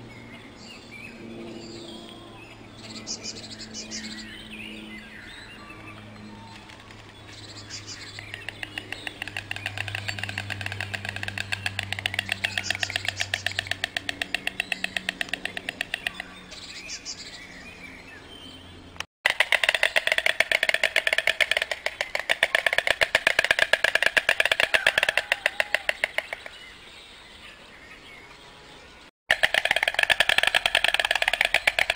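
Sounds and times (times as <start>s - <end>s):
storks clattering bills: 8.2s - 16.3s, 19.3s - 26.6s, 29.3s - 31.9s.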